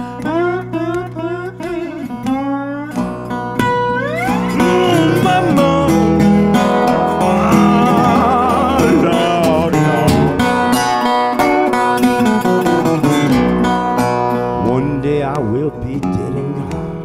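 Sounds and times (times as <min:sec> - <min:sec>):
man singing: 0:00.0 - 0:03.0, 0:04.2 - 0:11.9, 0:14.5 - 0:17.0
slide acoustic guitar blues: 0:00.0 - 0:17.0.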